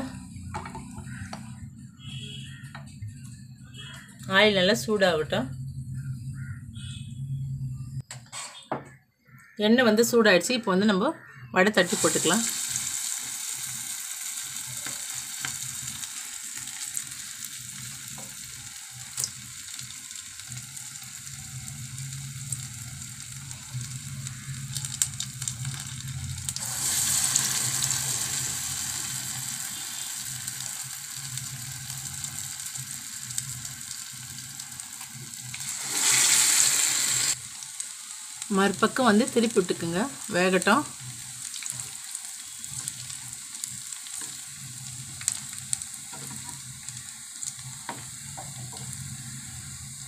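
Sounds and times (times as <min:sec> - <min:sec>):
batter sizzling in hot oil: 0:00.8 - 0:01.3, 0:11.8 - 0:50.0.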